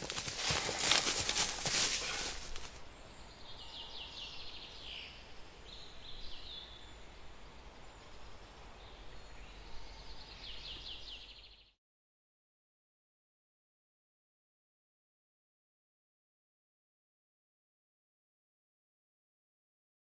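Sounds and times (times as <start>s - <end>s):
rustling and thuds: 0.0s - 2.8s
birds singing in trills: 0.9s - 11.8s.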